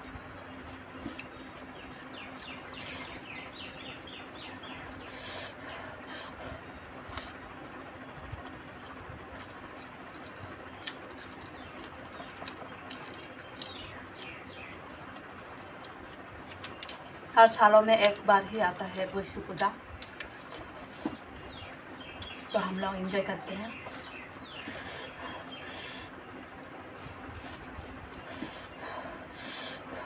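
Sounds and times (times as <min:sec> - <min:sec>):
chewing and lip smacks: 0:00.0 - 0:04.8, 0:06.3 - 0:17.4, 0:19.6 - 0:22.6, 0:26.4 - 0:28.7
breathy hisses: 0:24.6 - 0:26.2, 0:28.3 - 0:30.0.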